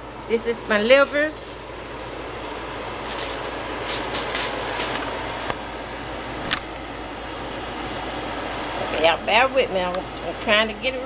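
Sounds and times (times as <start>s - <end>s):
room fan hiss: 0.0s - 11.0s
plastic wrap crinkling: 0.6s - 5.2s.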